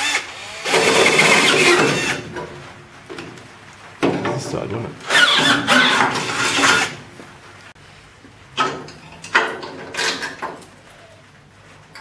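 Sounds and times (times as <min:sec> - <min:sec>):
electric drill boring through steel: 0:00.0 - 0:02.2.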